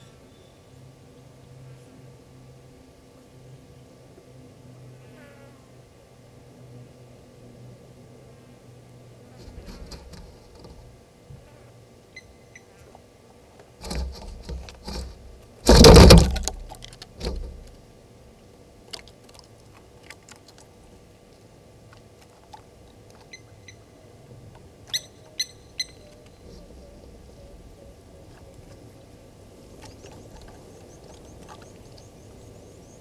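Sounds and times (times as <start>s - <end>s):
clicks and rattles: 9.4s - 10.9s, 13.8s - 17.8s
small bird chirping: 24.9s - 27.1s.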